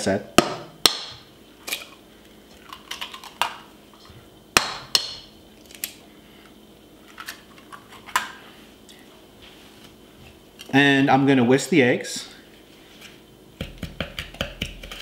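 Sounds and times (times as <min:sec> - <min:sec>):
eggs cracked on metal bowl: 0:02.7 - 0:03.6.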